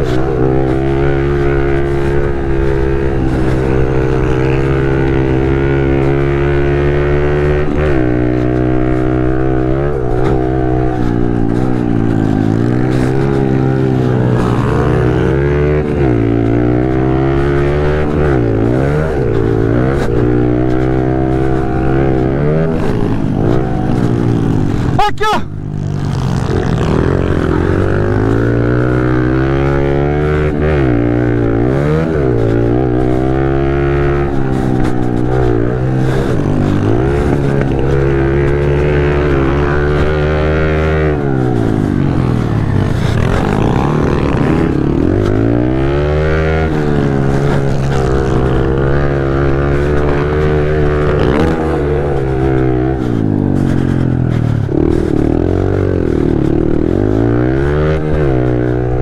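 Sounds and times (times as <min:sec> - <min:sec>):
motorcycle engine revving hard: 0:00.0 - 0:59.0.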